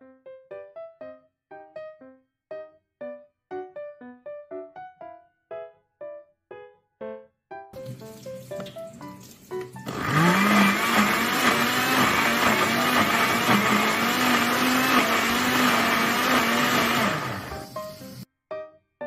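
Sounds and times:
blender motor running: 9.8 - 18.3.

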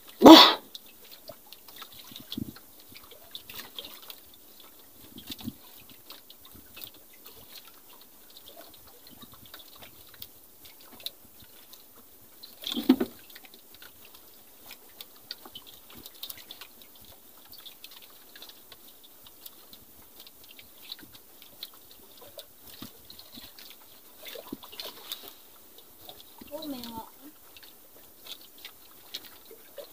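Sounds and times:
water lapping against boat hull: 0.0 - 29.9
thump on boat: 12.8 - 13.2.

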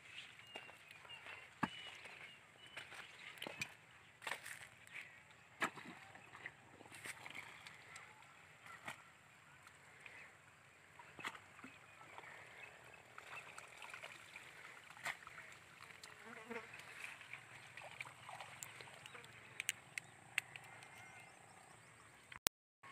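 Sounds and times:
faint insect buzzing: 16.2 - 16.8.

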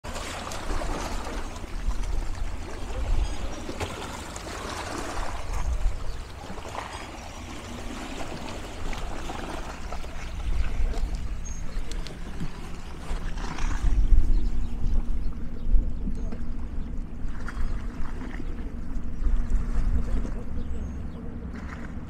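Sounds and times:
waves splashing against rocks: 0.1 - 14.1
low rumble: 10.1 - 22.0.

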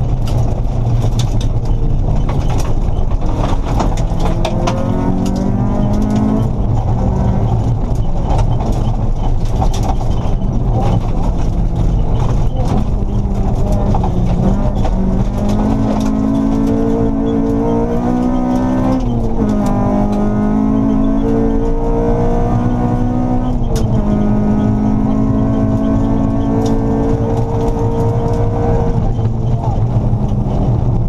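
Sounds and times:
tyres rumbling on gravel: 0.0 - 21.1
stones ticking: 0.0 - 21.4
car engine accelerating hard: 0.0 - 31.0.

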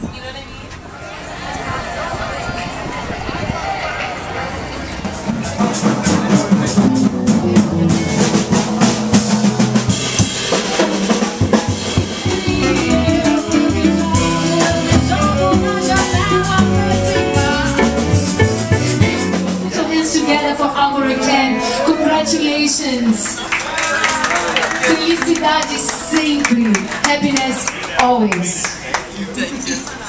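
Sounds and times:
bass guitar: 4.5 - 23.7
drum kit beat: 5.0 - 20.6
melody line: 6.8 - 9.9, 21.6 - 23.6.

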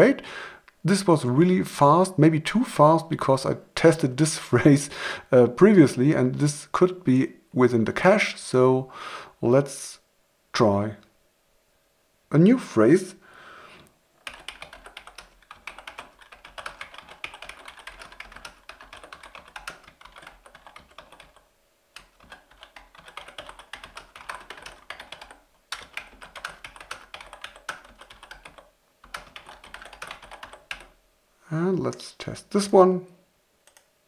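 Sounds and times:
typing on computer keyboard: 14.2 - 31.0.

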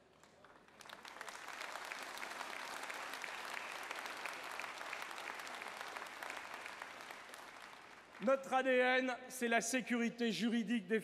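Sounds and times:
crowd applauding: 0.0 - 8.4.

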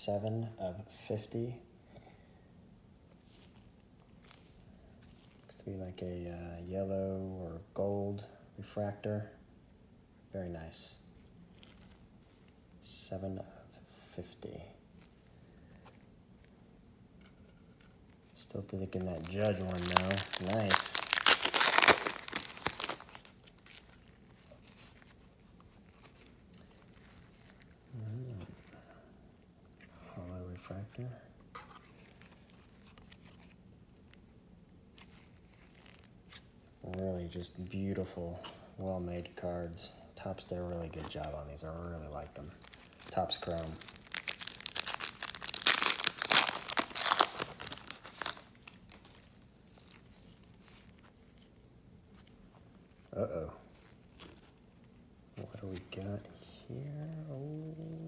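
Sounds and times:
cards rustling: 17.6 - 28.8, 40.9 - 51.5
foil wrapper crinkling: 18.4 - 27.8, 35.0 - 36.5, 42.1 - 51.5, 53.7 - 55.0.

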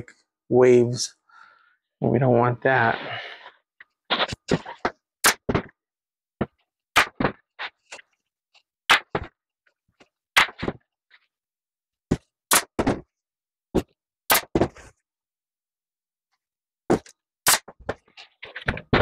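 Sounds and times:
hands patting and rubbing vinyl: 4.1 - 5.7.

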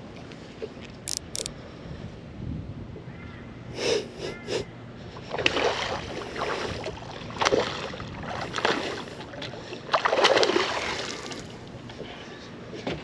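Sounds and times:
water splashing from thrashing fish: 5.4 - 11.6.

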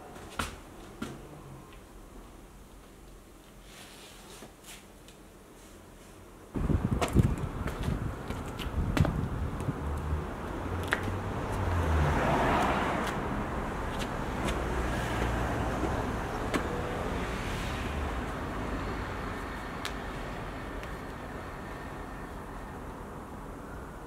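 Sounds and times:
car driving past: 10.1 - 19.5.

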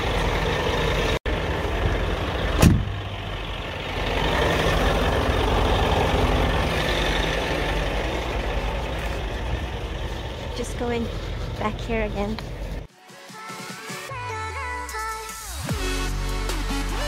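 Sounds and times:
truck engine running: 0.0 - 12.9
thump: 2.6 - 2.9.

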